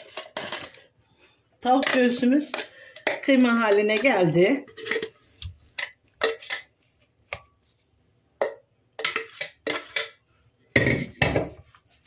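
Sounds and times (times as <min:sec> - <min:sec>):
spatula scraping bowl: 0:00.0 - 0:00.8.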